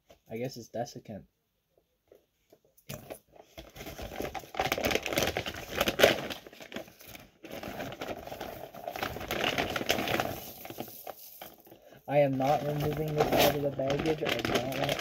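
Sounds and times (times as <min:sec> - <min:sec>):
plastic bag crinkling: 0:03.0 - 0:15.0.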